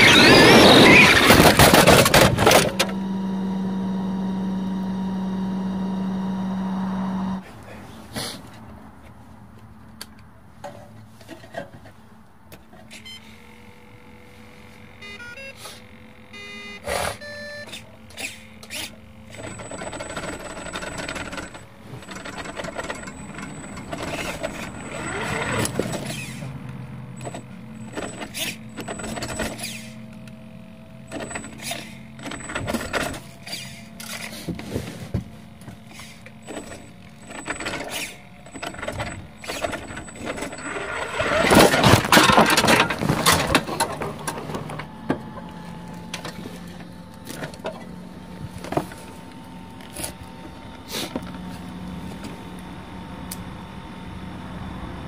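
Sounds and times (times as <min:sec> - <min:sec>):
toy truck motor running: 0:00.0 - 0:07.4, 0:14.9 - 0:35.0, 0:35.6 - 0:51.4
knocks and rattles: 0:36.6 - 0:45.4.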